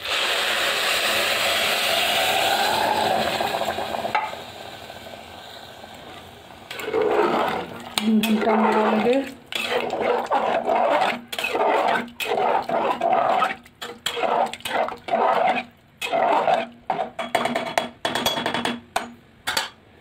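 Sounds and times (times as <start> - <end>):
ladle scraping in metal pot: 6.7 - 17.5.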